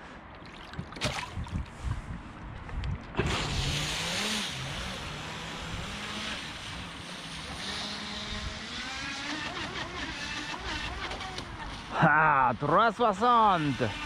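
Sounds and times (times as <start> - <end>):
water spray rushing: 3.2 - 8.2
electric motor whine: 3.4 - 11.9.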